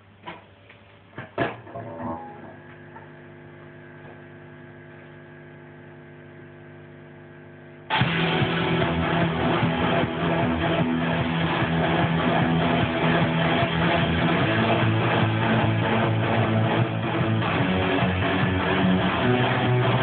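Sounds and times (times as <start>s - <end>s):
guitar amplifier hum: 0.0s - 20.0s
electric guitar song: 1.2s - 3.1s, 7.9s - 20.0s
guitar string and pick clicks: 1.2s - 3.1s.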